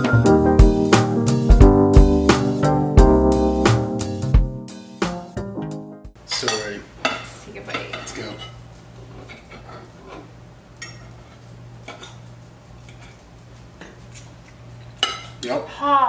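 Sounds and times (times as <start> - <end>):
forks clinking on plates: 10.8 - 11.2, 15.0 - 15.4.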